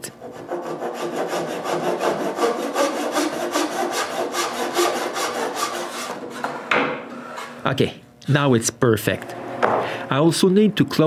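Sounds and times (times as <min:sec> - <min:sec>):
handsaw cutting wood: 0:00.0 - 0:06.5.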